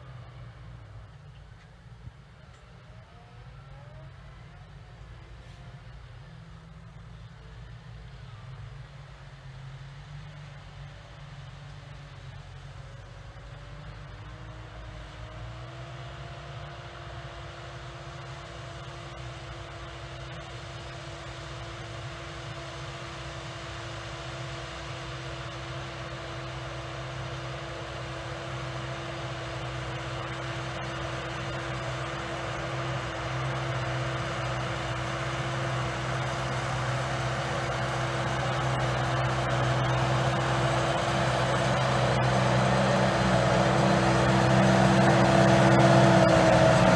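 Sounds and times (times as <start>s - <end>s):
tractor engine under load: 20.0s - 46.9s
steady whine: 22.7s - 46.9s.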